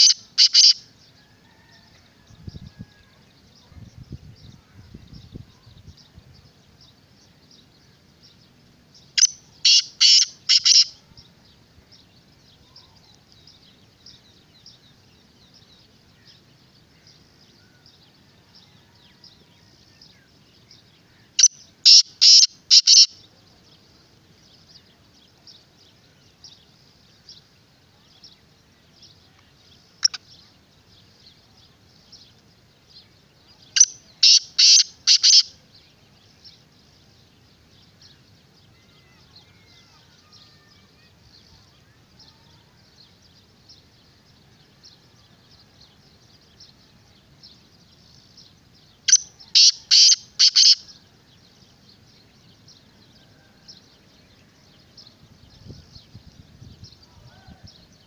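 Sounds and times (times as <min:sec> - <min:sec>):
bird calling harsh notes: 0:00.0 - 0:00.8, 0:09.2 - 0:10.9, 0:21.4 - 0:23.1, 0:33.8 - 0:35.5, 0:49.1 - 0:50.8.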